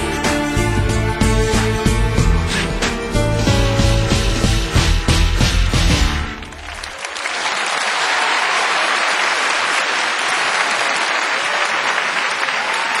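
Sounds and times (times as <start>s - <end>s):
music with a beat: 0.0s - 6.4s
crowd applause: 6.1s - 13.0s.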